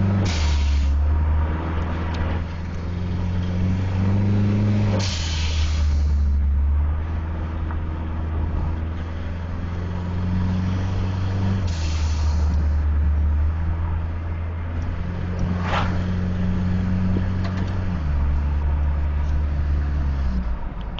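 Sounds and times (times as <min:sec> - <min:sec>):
car engine while driving: 0:00.0 - 0:20.9
short hissy rush: 0:15.6 - 0:16.1.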